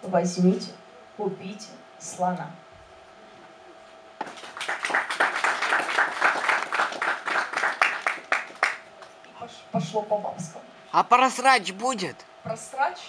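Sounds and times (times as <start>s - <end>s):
audience clapping: 4.2s - 9.1s.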